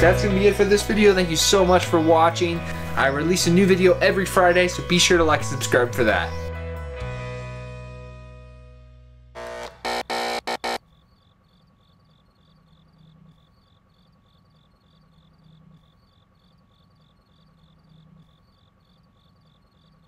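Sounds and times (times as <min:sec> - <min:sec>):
crickets chirping: 0:10.8 - 0:20.0.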